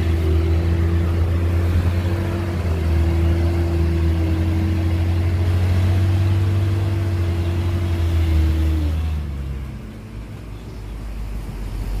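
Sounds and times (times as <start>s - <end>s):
heavy diesel engine running: 0.0s - 12.0s.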